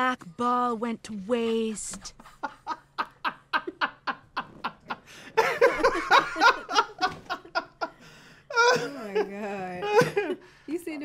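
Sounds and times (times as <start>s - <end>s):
man and woman laughing: 2.2s - 10.4s.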